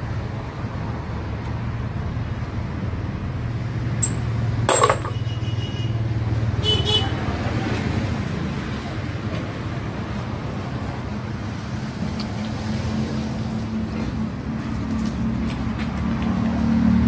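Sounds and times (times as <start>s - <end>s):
metal parts clinking: 4.0s - 5.2s.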